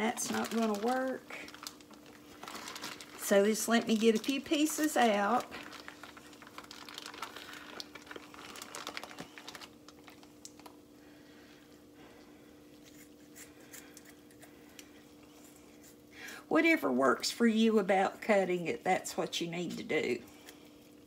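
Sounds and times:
plastic packaging crinkling: 0.0s - 10.8s
faint steady hum: 0.0s - 21.0s.

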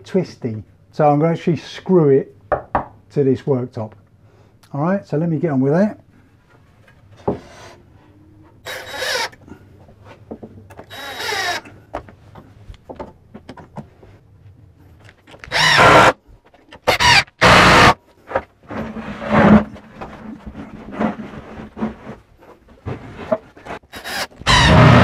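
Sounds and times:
drill driving screws into timber: 8.7s - 9.4s, 10.8s - 11.6s, 15.4s - 16.2s, 16.8s - 18.0s, 23.9s - 25.0s.

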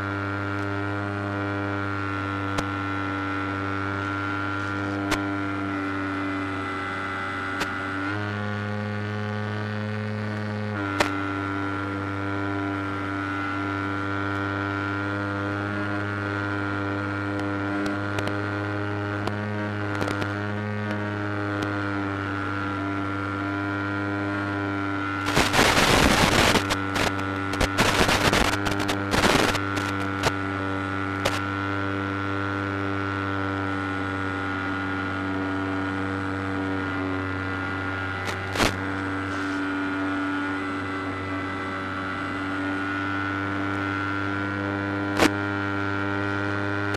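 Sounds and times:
electrical hum and buzz: 0.0s - 46.9s
crackling static bursts: 25.1s - 30.5s, 31.1s - 31.6s, 35.8s - 45.9s.

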